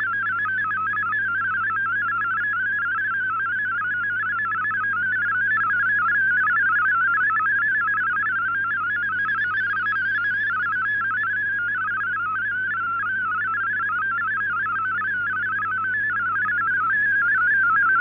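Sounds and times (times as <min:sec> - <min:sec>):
digital signal tones hopping: 0:13.5 - 0:18.0
steady low hum: 0:15.1 - 0:18.0.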